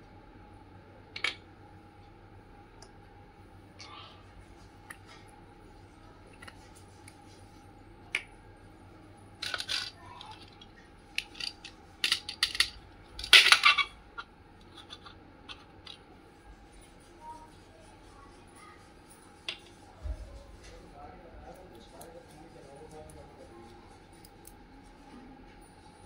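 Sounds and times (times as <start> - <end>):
plastic toy pieces clacking: 9.4 - 16.0.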